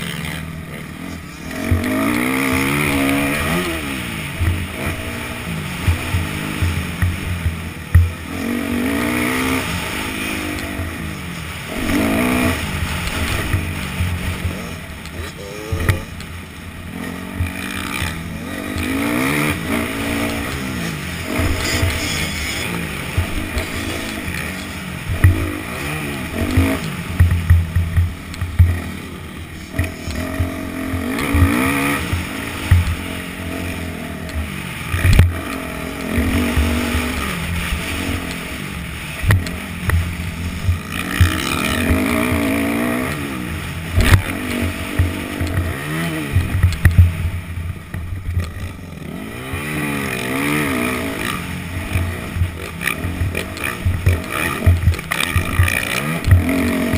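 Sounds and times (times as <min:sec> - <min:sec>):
dirt bike engine revving: 0:00.0 - 0:56.9.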